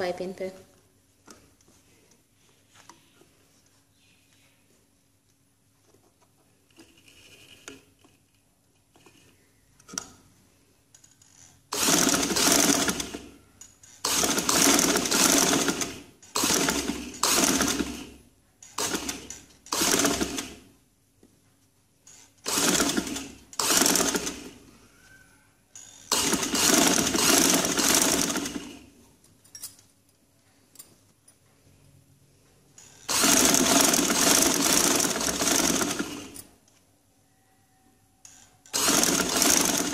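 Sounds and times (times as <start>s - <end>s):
sewing machine stitching: 11.7s - 13.4s, 14.0s - 20.7s, 22.1s - 24.6s, 25.8s - 28.9s, 32.8s - 36.4s, 38.7s - 39.9s.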